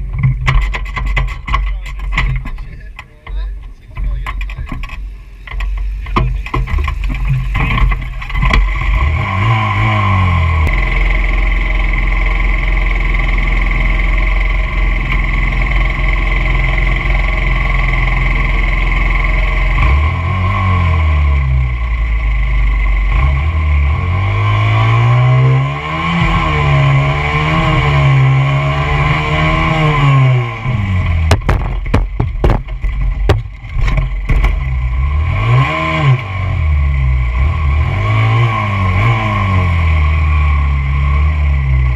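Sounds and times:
sharp clicks and knocks: 0.0 - 9.1, 29.0 - 34.9
dirt bike engine revving: 6.6 - 11.4, 23.0 - 33.0, 33.8 - 41.8.

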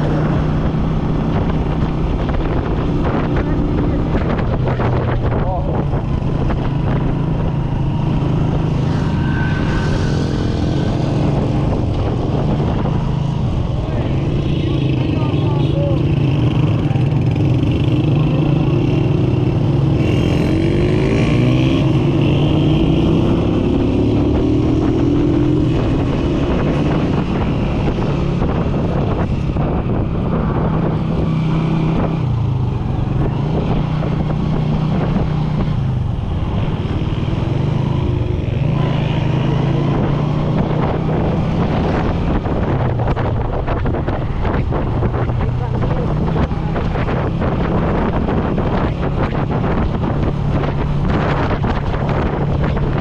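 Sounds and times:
wind rushing over microphone: 0.0 - 53.0.

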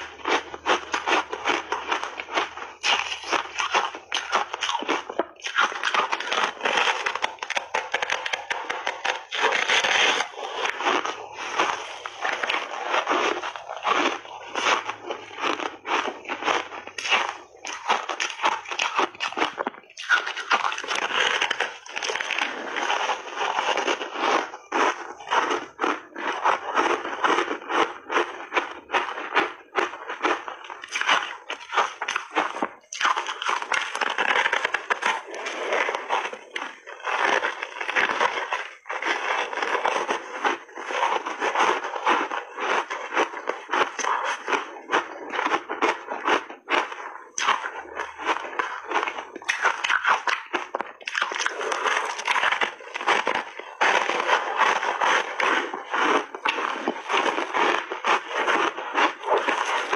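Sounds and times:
chewing crunchy ice: 0.0 - 59.9.

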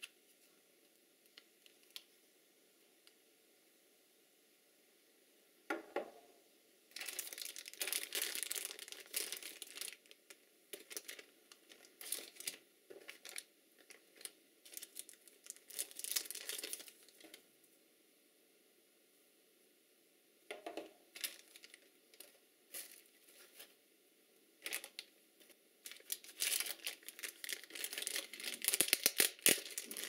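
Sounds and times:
plastic bags crinkling: 6.9 - 17.4, 21.1 - 23.8, 24.6 - 30.0.

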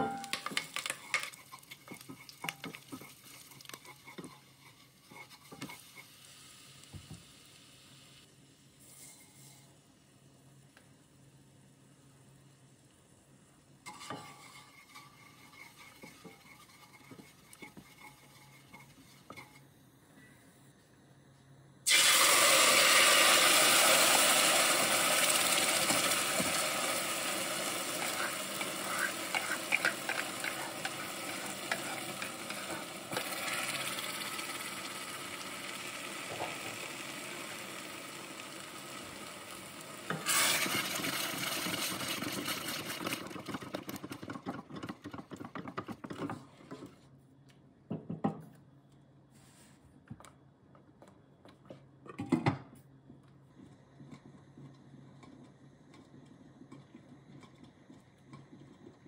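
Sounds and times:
sauce sizzling in hot oil: 0.0 - 8.7, 21.9 - 43.6.

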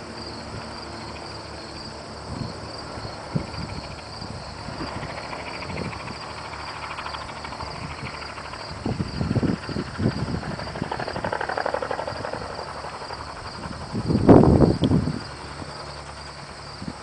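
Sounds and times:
distant propeller engine buzzing: 0.0 - 17.0
insects chirping: 0.0 - 17.0
wind bumps on microphone: 2.3 - 2.7, 3.3 - 6.2, 7.6 - 15.8.

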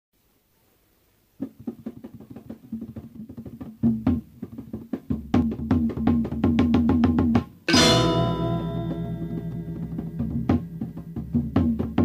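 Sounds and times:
gamelan ensemble playing: 7.7 - 11.9.

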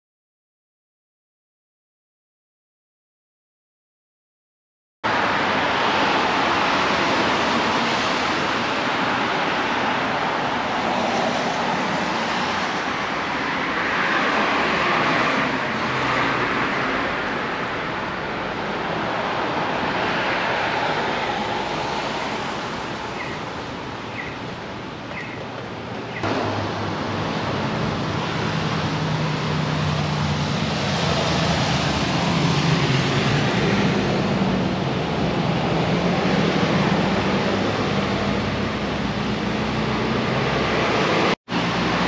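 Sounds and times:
tyres hissing on wet road: 5.1 - 23.1.

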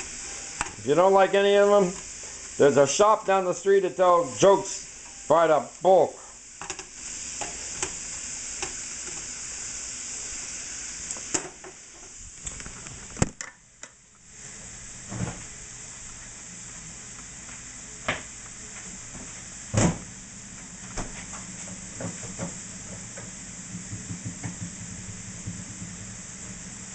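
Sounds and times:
food sizzling in a frying pan: 0.0 - 13.1.

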